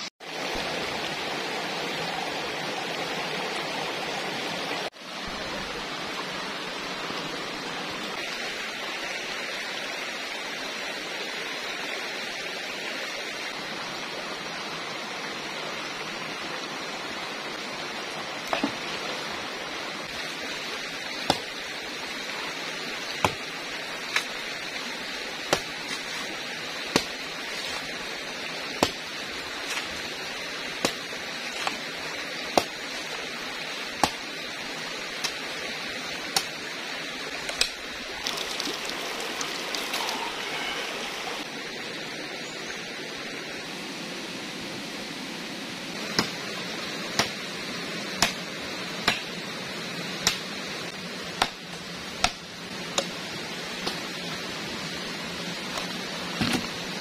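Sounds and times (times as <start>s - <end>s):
stream rushing: 0.0s - 57.0s
machete chopping: 21.2s - 21.5s, 23.2s - 23.5s, 25.4s - 27.2s, 28.7s - 29.9s, 46.1s - 46.4s, 47.1s - 47.4s, 48.2s - 49.4s, 50.2s - 50.5s, 51.4s - 52.4s, 53.8s - 54.0s.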